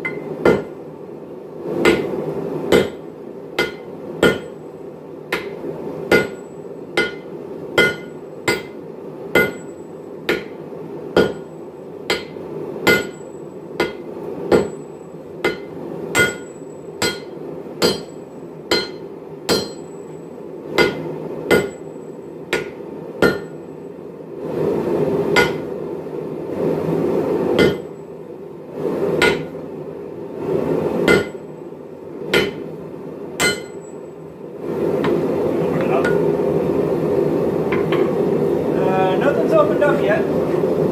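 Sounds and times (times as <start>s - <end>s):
hammers striking metal on anvil: 0.0s - 0.7s, 1.8s - 3.0s, 3.6s - 4.6s, 5.3s - 8.8s, 9.4s - 10.6s, 11.2s - 11.5s, 12.1s - 20.0s, 20.7s - 21.9s, 22.5s - 23.6s, 25.3s - 25.7s, 27.6s - 28.0s, 29.2s - 29.5s, 31.0s - 31.4s, 32.3s - 32.7s, 33.4s - 34.0s, 36.0s - 36.2s.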